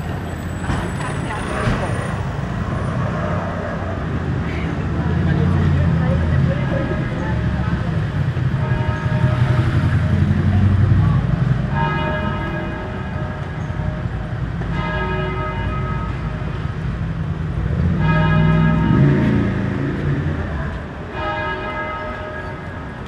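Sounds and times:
street traffic rumble: 0:00.0 - 0:23.0
church bell tolling: 0:11.6 - 0:16.8, 0:17.9 - 0:23.0.

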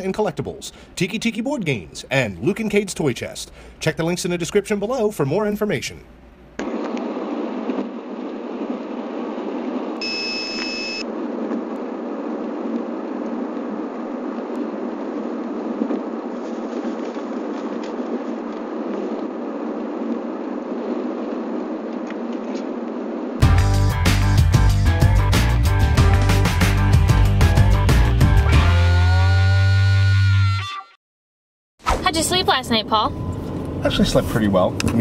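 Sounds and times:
high electronic beep: 0:10.0 - 0:11.0
car cabin road noise: 0:32.0 - 0:35.0.

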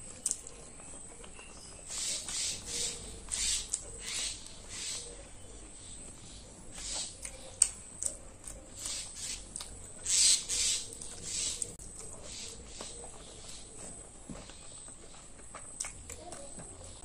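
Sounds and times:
chewing and mouth smacking: 0:00.0 - 0:01.4, 0:06.9 - 0:10.0, 0:14.5 - 0:17.0.

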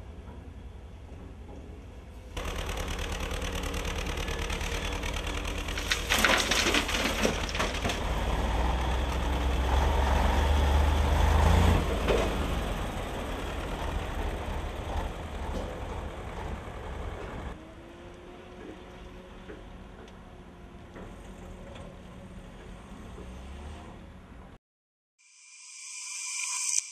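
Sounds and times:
diesel engines running: 0:00.0 - 0:24.6
asphalt rubble crunching: 0:02.4 - 0:09.2.

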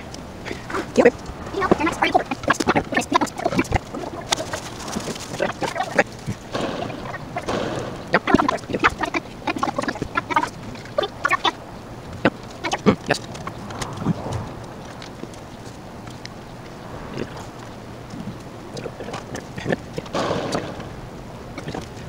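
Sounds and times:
fowl calling: 0:00.0 - 0:22.0.

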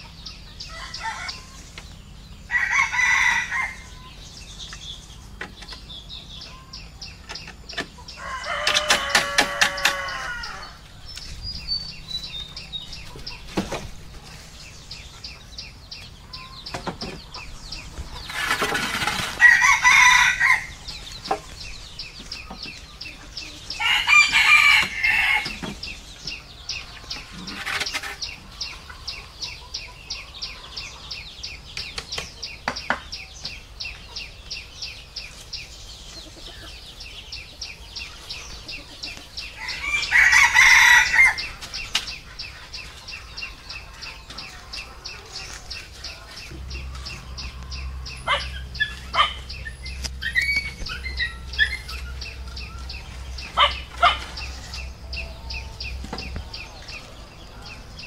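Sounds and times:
rooster crowing: 0:02.5 - 0:04.1, 0:08.2 - 0:10.8, 0:19.4 - 0:20.8, 0:23.7 - 0:25.6, 0:39.6 - 0:41.5.

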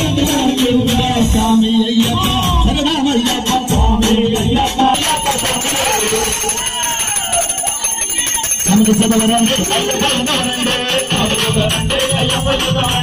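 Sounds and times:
bells jingling: 0:04.8 - 0:13.0.

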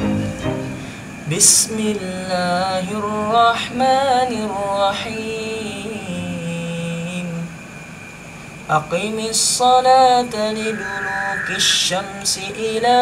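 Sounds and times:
man chanting melodic recitation: 0:08.7 - 0:13.0
short sharp noise: 0:10.3 - 0:12.4.

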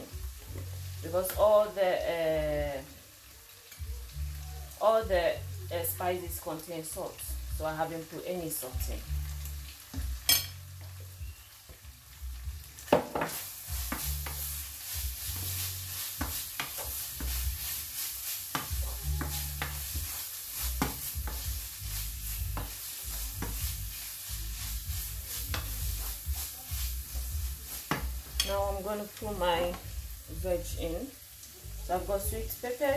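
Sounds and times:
meat sizzling in a frying pan: 0:00.0 - 0:32.9
wooden spoon scraping a pan: 0:13.2 - 0:29.0.

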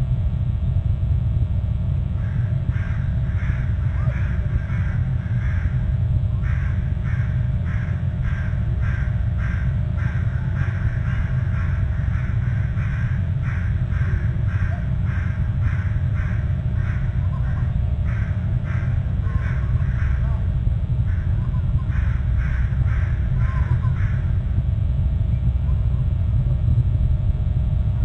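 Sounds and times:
steady low rumble: 0:00.0 - 0:28.0
nestling begging calls: 0:02.2 - 0:20.4, 0:21.1 - 0:24.4.

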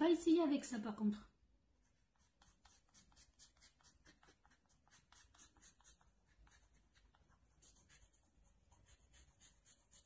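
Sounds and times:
blade scraping pastel stick: 0:02.1 - 0:10.0.

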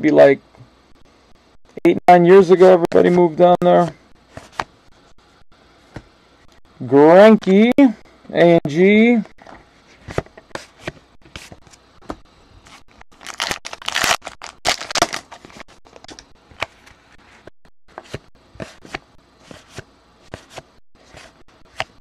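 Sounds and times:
wrapper crinkling and tearing: 0:13.1 - 0:15.6.

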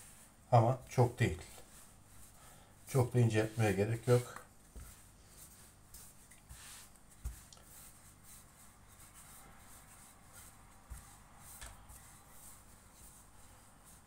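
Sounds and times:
rolling pin rubbing on dough: 0:00.0 - 0:14.0
soft thumps of rolling pin: 0:03.6 - 0:14.0.

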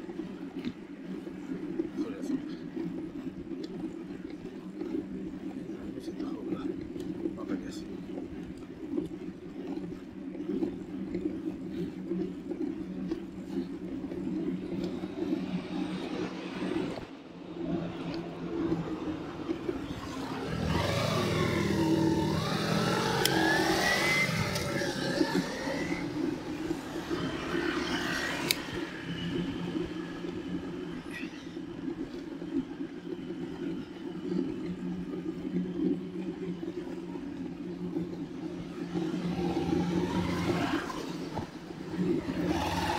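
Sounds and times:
bicycle tyres humming on road: 0:00.0 - 0:42.9
rising and falling whines: 0:14.8 - 0:37.1, 0:38.4 - 0:42.9.

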